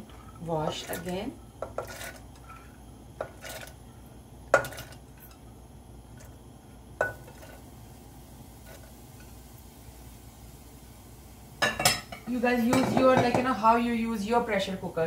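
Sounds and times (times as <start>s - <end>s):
peas clinking into metal pot: 4.5s - 5.4s.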